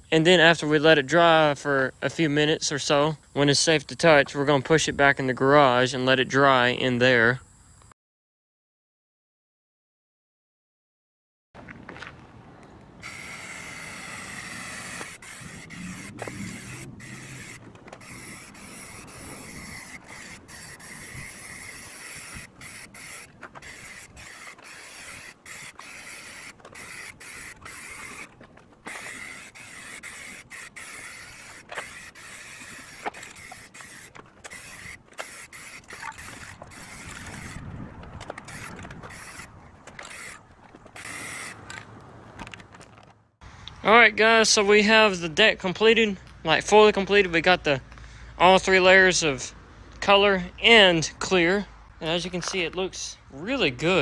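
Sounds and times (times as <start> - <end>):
spray paint hissing: 13.0 - 41.8.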